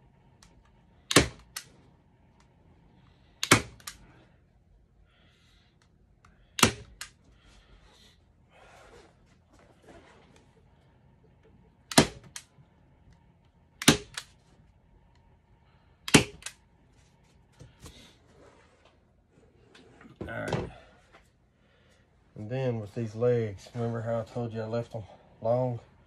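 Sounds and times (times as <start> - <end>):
staple gun snapping: 1.1 - 1.7, 3.4 - 4.0, 13.8 - 14.3, 16.1 - 16.6.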